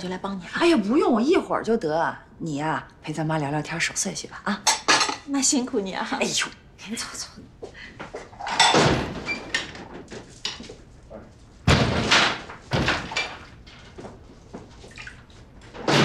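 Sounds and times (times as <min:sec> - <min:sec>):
dishes clinking against steel basins: 0:04.6 - 0:05.3
heavy clattering knocks: 0:11.7 - 0:13.4.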